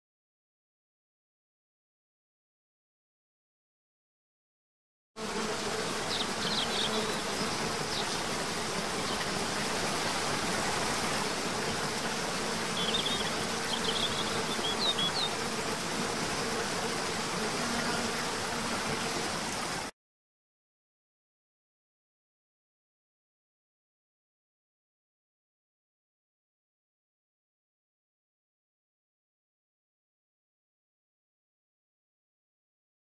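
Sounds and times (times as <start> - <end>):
insect buzzing: 5.2 - 19.9.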